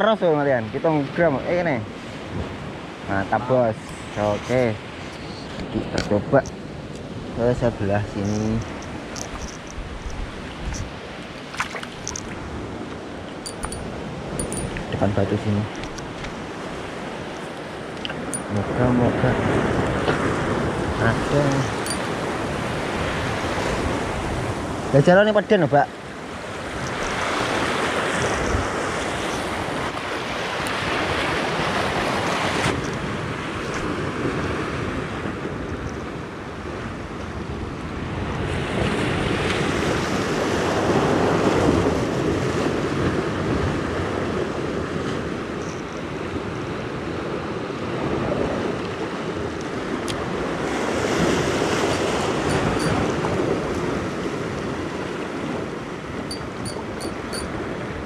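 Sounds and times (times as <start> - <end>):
waves breaking on rocks: 26.0 - 56.2.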